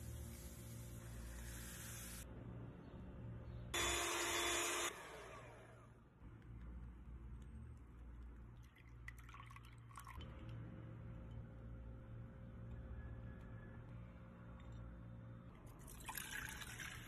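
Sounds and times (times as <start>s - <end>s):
electric hand mixer running: 3.8s - 5.8s.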